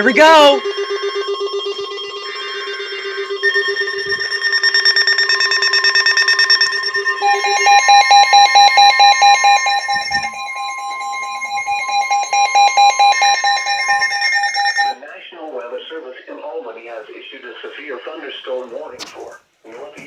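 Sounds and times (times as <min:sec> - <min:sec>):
fast-beeping high alarm: 0:00.0 - 0:15.0
rapidly pulsing tone: 0:00.0 - 0:15.0
steady electronic alarm tones: 0:00.0 - 0:15.0.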